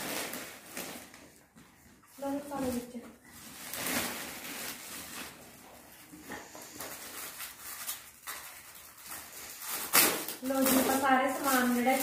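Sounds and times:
cardboard and plastic packaging crinkling: 0.0s - 12.0s.

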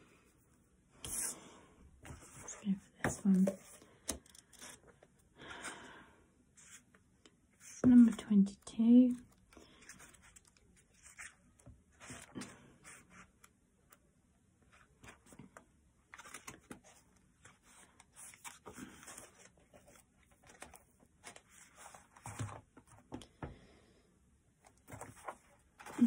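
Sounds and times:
book pages rustling: 9.1s - 13.5s, 14.7s - 23.2s, 24.7s - 26.0s.

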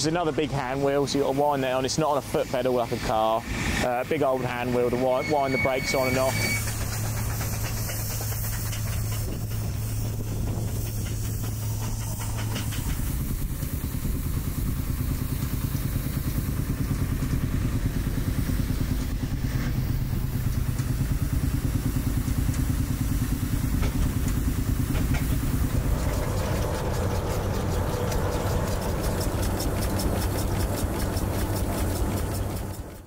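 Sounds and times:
engine running steadily: 0.0s - 33.0s.

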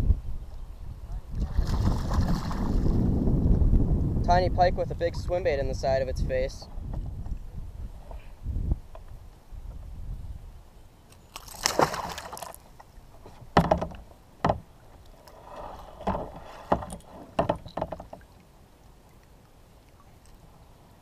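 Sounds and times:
gear knocking on kayak hull: 13.5s - 14.7s, 16.0s - 18.2s.

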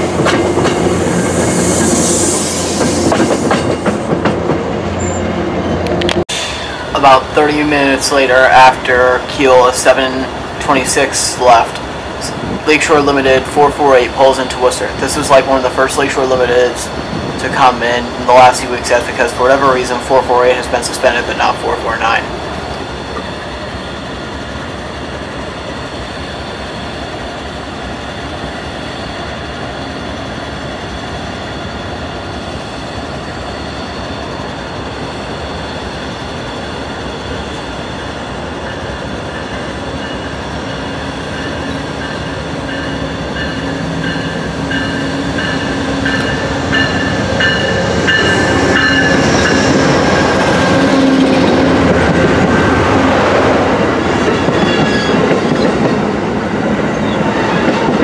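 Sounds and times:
train rail rumble: 0.0s - 58.0s
train wheels squealing: 54.3s - 55.7s.

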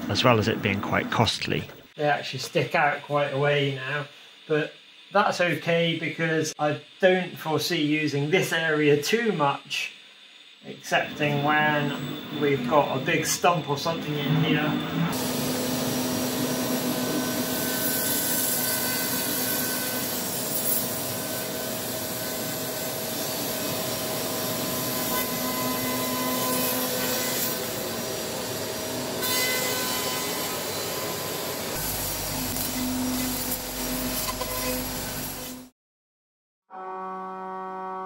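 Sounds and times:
dust extraction hiss: 0.0s - 35.7s
router cutting wood: 10.8s - 35.7s.

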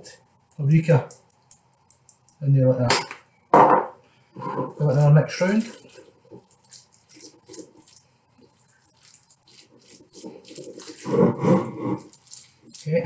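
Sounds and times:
utensil scraping ceramic bowl: 4.4s - 13.0s.

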